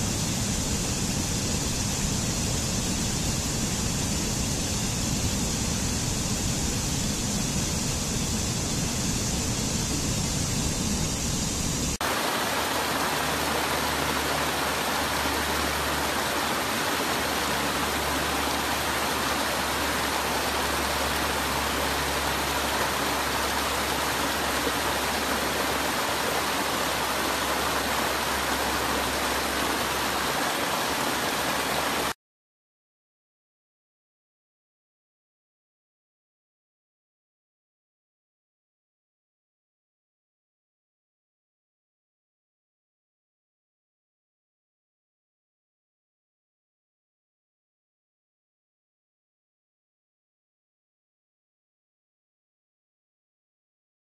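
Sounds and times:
waterfall rushing: 9.2s - 32.2s.

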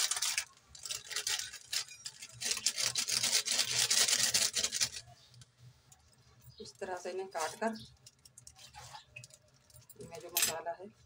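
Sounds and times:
plastic wrappers crinkling: 0.0s - 5.1s.

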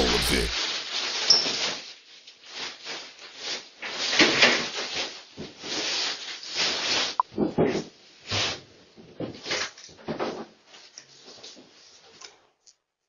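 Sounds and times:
rustling and clattering of items: 0.8s - 12.6s.

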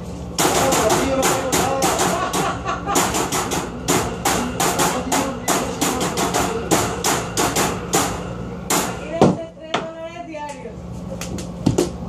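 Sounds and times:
rapid hard percussion knocks: 0.4s - 2.4s, 3.0s - 9.4s.

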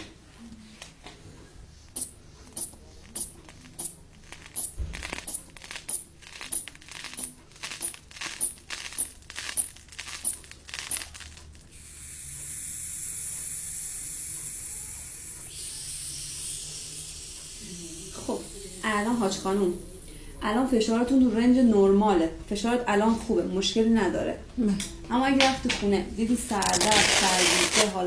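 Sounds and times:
inflation bulb puffing air: 11.7s - 20.1s
air hissing from valve: 11.7s - 20.2s.

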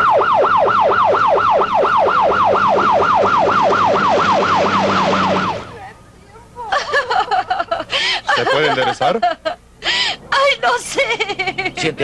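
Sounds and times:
ambulance siren yelp: 0.0s - 5.9s.

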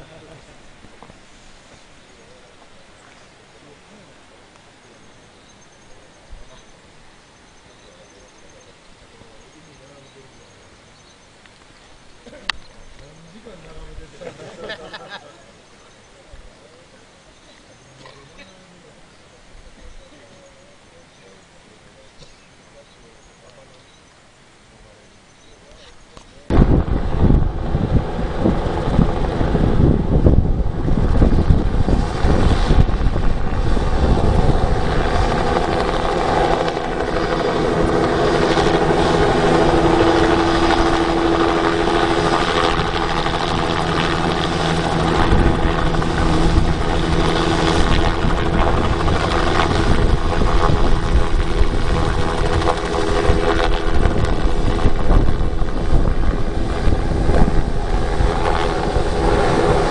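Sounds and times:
helicopter rotor and engine: 26.5s - 59.9s.

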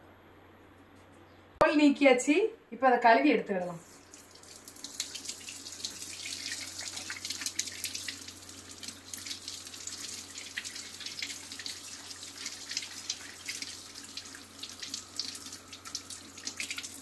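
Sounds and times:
tap water splashing in sink: 4.0s - 17.0s.

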